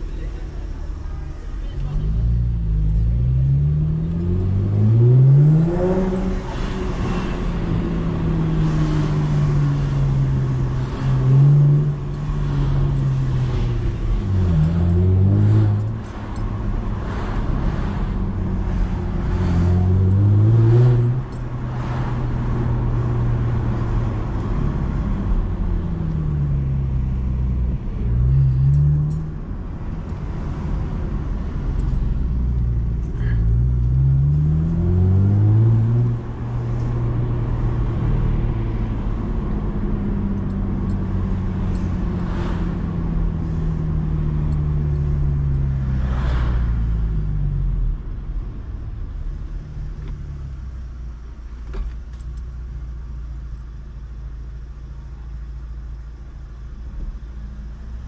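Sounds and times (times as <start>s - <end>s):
car engine revving while driving: 1.8s - 48.1s.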